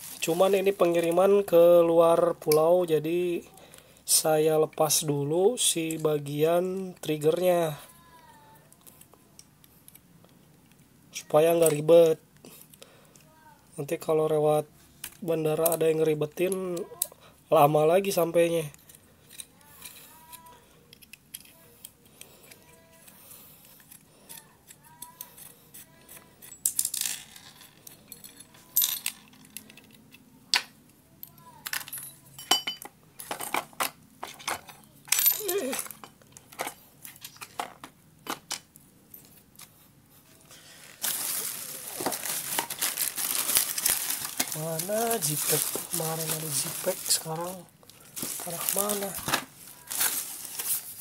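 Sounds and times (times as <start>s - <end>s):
small metal parts clicking: 18.7s - 39.5s
paper rustling: 40.2s - 51.0s.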